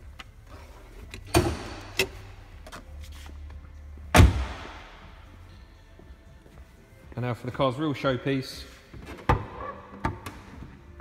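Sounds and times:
car door shutting thump: 4.2s - 4.7s.

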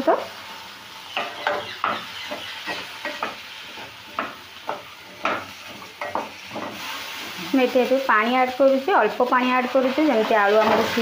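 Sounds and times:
vegetables sizzling: 0.0s - 11.0s
spatula scraping a pan: 1.1s - 7.6s, 9.5s - 11.0s.

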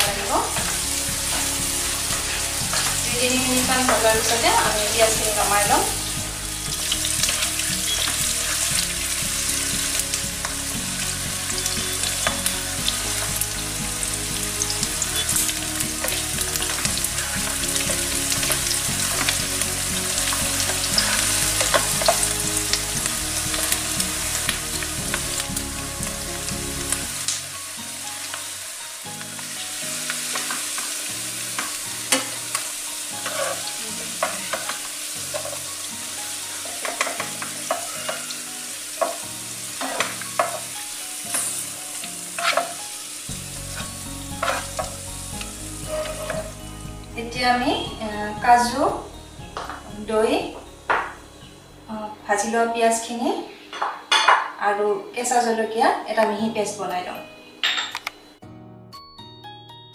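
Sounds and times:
onions sizzling in oil: 0.0s - 52.5s
spatula stirring and scraping: 0.6s - 3.1s, 6.8s - 9.6s, 15.1s - 22.8s, 33.2s - 35.7s, 36.6s - 38.4s, 42.3s - 42.8s, 43.6s - 45.0s, 45.8s - 46.6s.

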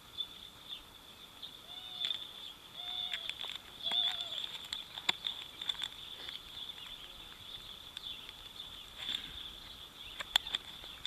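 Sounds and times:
steady high-pitched whine: 0.0s - 11.0s
small items clicking and rustling: 2.0s - 9.4s, 10.1s - 11.0s.

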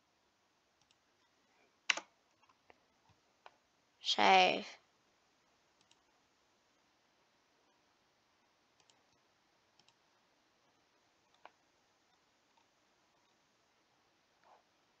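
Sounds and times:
computer mouse clicks: 0.8s - 1.0s, 1.9s - 3.6s, 5.8s - 6.1s, 8.8s - 10.0s, 11.2s - 13.4s.

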